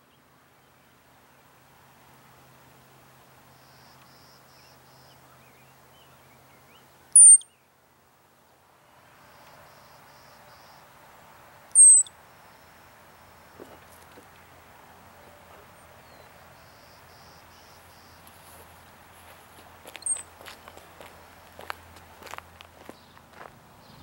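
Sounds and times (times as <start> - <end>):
faint insect trills: 1.6 - 7.6, 8.4 - 23.5
ground squirrel alarm chirps: 7.1 - 7.5, 11.7 - 12.2, 20.0 - 20.3.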